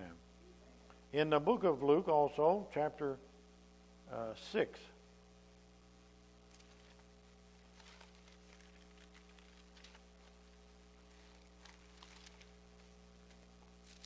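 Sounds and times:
electrical mains hum: 0.0 - 14.0
pages turning: 6.4 - 14.0.

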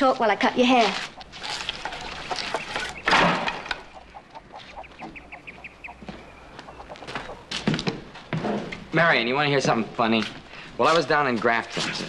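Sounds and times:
hens clucking: 0.0 - 8.2
hen squawking loudly: 0.9 - 7.5.

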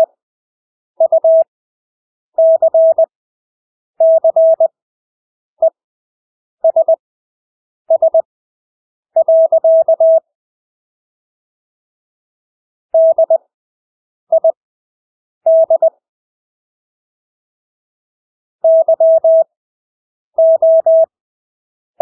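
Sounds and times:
morse code beeps: 1.0 - 1.5, 2.4 - 3.1, 4.0 - 4.7, 6.6 - 7.0, 7.9 - 8.3, 9.2 - 10.2, 13.0 - 13.4, 15.5 - 15.9, 18.6 - 19.5, 20.4 - 21.1.

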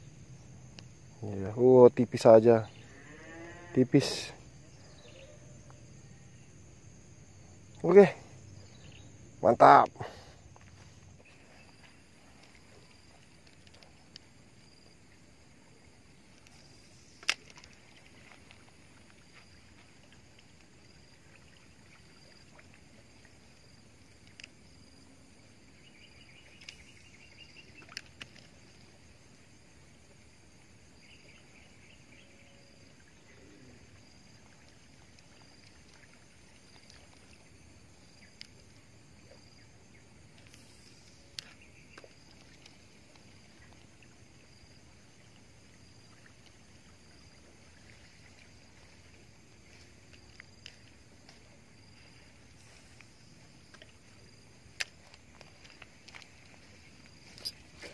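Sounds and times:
faint high chirp: 4.8 - 5.8.

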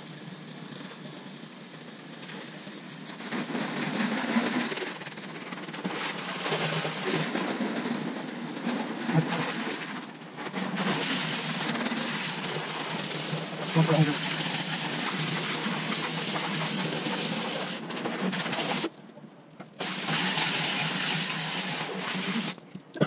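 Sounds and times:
hose water spraying on car: 0.0 - 23.0.

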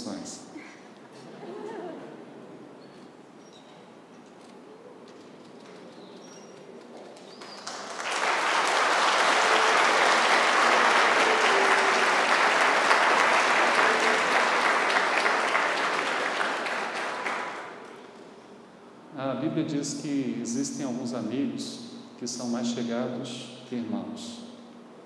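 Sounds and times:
congregation applauding: 7.1 - 18.3.

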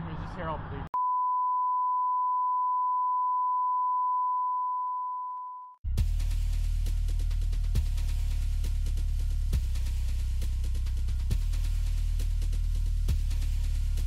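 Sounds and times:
high-pitched bleep tone: 1.0 - 5.8
bass-heavy music with steady beat: 5.8 - 14.0.

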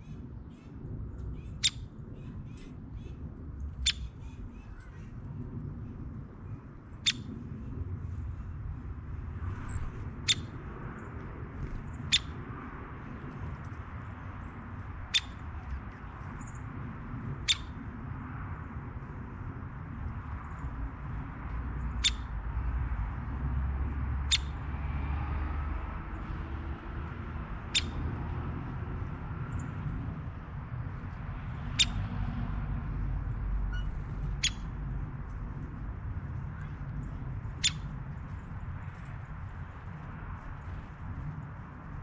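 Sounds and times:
steady low rumble: 0.0 - 42.0.

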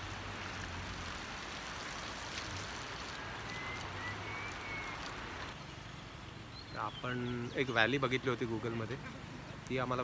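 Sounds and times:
river water flowing over rocks: 0.0 - 6.3.

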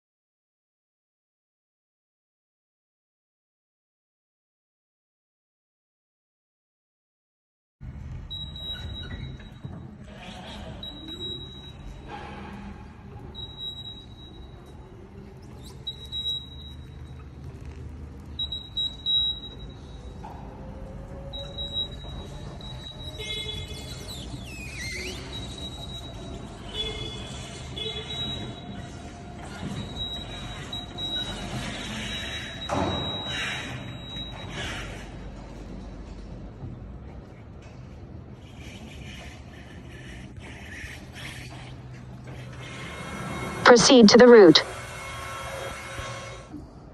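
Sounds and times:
high-pitched warning beeps: 8.3 - 9.7, 10.8 - 12.1, 13.3 - 14.8, 18.4 - 20.2, 43.7 - 44.7.

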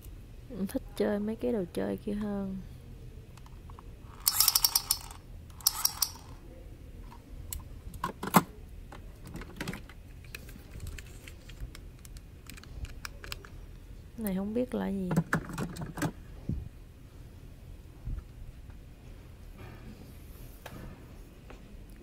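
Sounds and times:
plastic toy gun clicking: 4.2 - 6.4.

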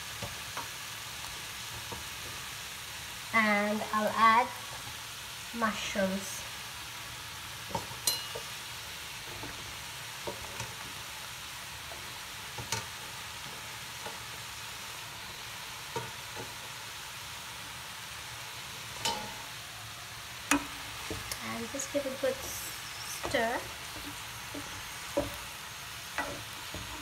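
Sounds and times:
vegetables sizzling in frying pan: 0.0 - 27.0
spatula knocking pan: 19.0 - 19.4, 20.5 - 21.4, 23.2 - 25.4, 26.1 - 27.0.

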